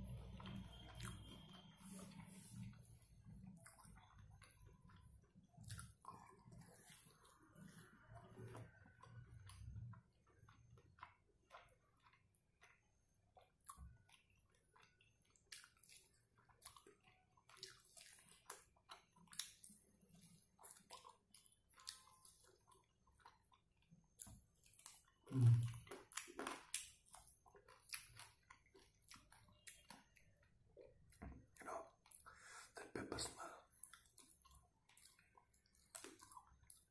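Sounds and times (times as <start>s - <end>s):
person chewing: 0.0s - 36.9s
wet mouth clicks and smacks: 13.4s - 23.5s, 24.1s - 30.4s, 32.0s - 36.9s.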